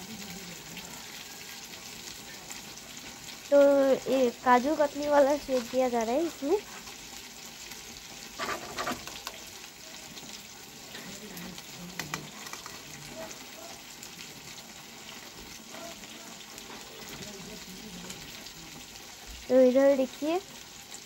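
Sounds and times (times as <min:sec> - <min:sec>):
spoon scraping steel plate: 0:08.4 - 0:09.1.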